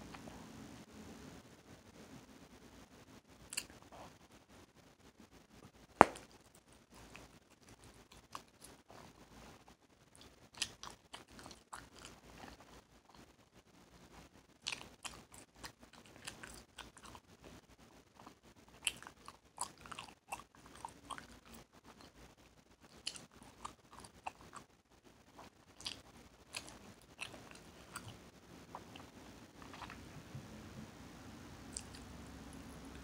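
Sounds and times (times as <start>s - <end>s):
gum clicks and snaps: 3.5s - 3.8s, 6.0s - 6.4s, 31.7s - 32.0s
bubble gum chewing smacks: 3.5s - 4.1s, 6.0s - 9.2s, 10.2s - 13.3s, 14.6s - 17.5s, 22.8s - 24.7s, 25.3s - 30.0s, 31.7s - 32.0s.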